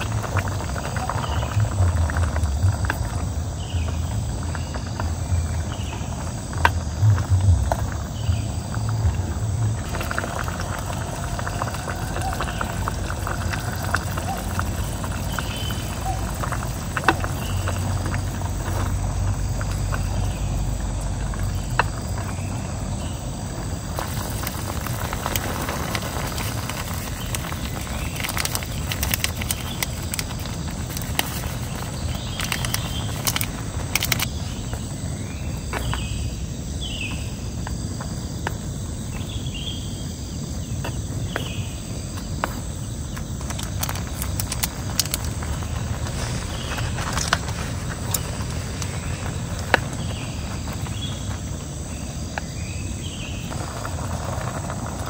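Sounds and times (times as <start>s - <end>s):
low rumble: 0.0s - 36.6s
insects buzzing: 0.0s - 55.0s.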